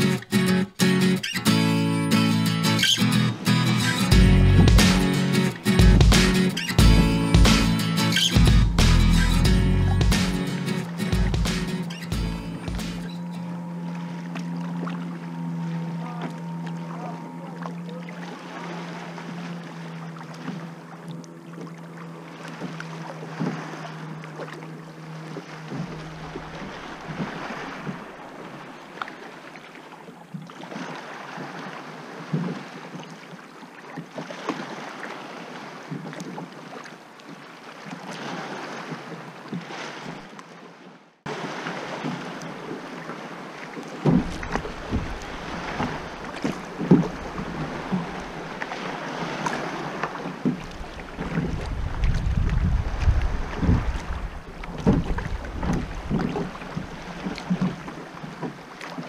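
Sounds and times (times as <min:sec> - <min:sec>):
water lapping against hull: 0:00.0 - 0:59.0
kayak paddle splashing: 0:02.8 - 0:59.0
wind buffeting microphone: 0:50.8 - 0:57.6.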